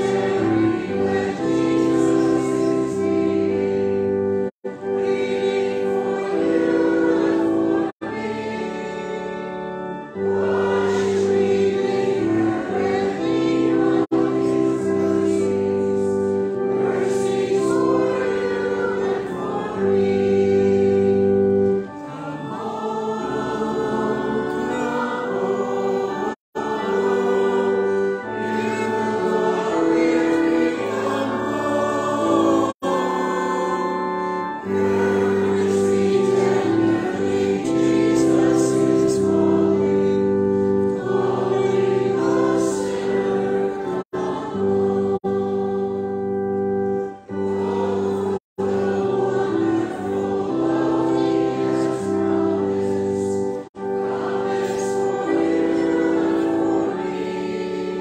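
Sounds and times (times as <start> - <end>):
congregation singing a hymn: 0.0 - 58.0
organ accompaniment: 0.0 - 58.0.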